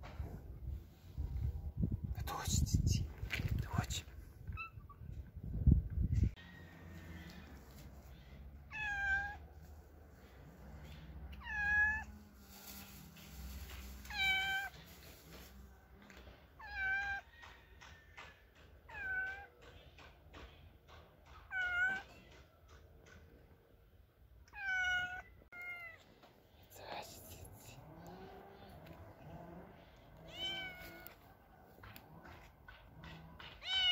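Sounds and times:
cat meowing: 8.7 - 9.5, 11.3 - 12.2, 14.1 - 14.8, 16.6 - 17.3, 18.9 - 19.5, 21.5 - 22.3, 24.5 - 26.0, 30.2 - 31.3, 33.4 - 33.9.

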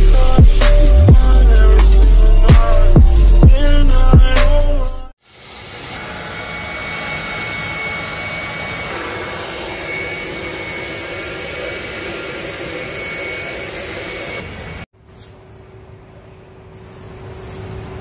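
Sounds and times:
thin high whine: 5.2 - 14.8
car wash equipment rushing hiss: 5.2 - 14.9.

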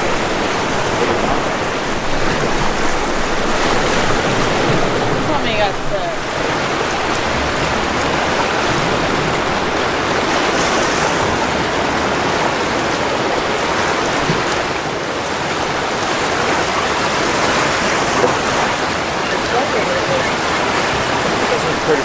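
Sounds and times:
surf washing against rocks: 0.0 - 22.0.

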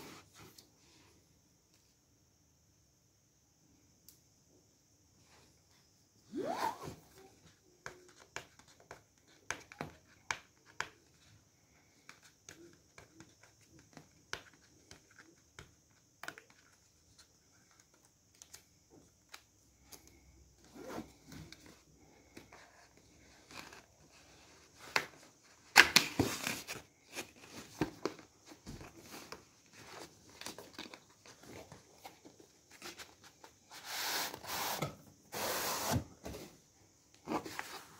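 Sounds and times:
hands handling cardboard box: 21.2 - 36.6.

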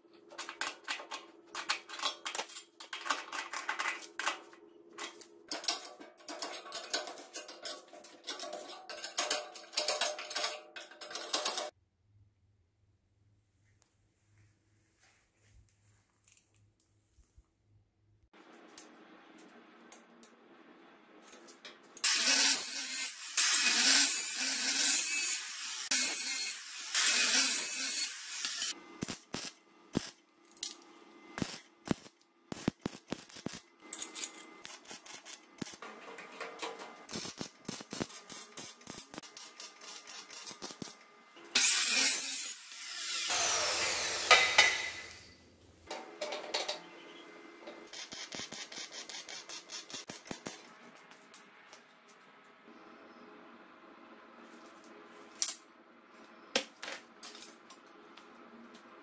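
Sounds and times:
welder arc crackling: 28.4 - 30.2, 31.4 - 35.8, 37.0 - 41.0, 47.9 - 50.6.

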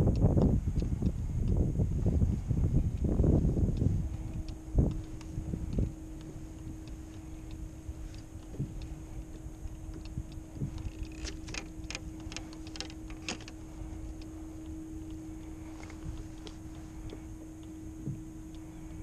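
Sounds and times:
steady low hum: 0.0 - 19.0
wind and water rumble: 0.0 - 19.0
fishing gear clicking and tapping: 3.0 - 18.7.

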